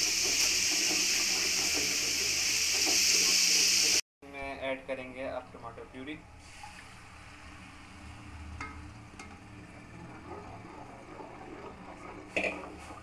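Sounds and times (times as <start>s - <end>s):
sauce sizzling in hot oil: 0.0s - 4.0s.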